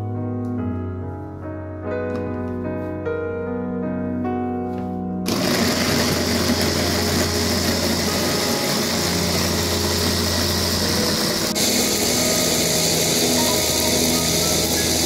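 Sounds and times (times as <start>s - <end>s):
food chopper motor whirring: 5.3s - 15.0s.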